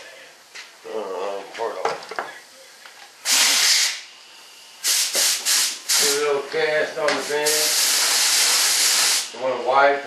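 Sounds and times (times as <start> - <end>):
spray gun hissing: 3.2 - 4.0, 4.8 - 6.2, 7.2 - 9.3.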